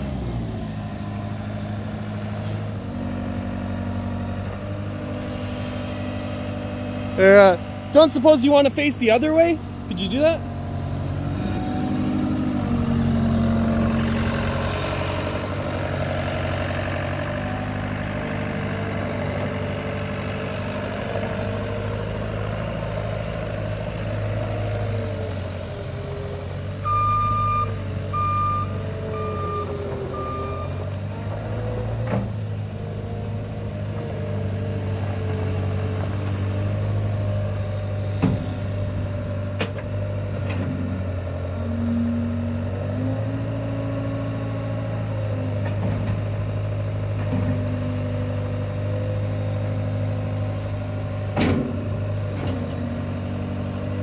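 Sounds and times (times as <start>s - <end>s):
diesel engine running: 0.0s - 54.0s
reverse alarm beeps: 26.8s - 30.8s.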